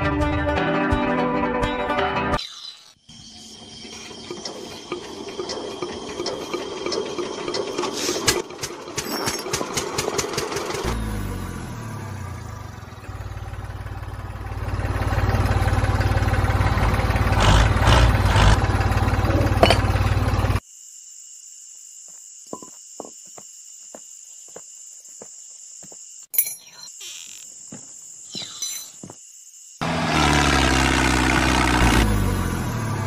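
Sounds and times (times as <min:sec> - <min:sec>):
tractor engine cranking and chugging: 0:03.6 - 0:20.6.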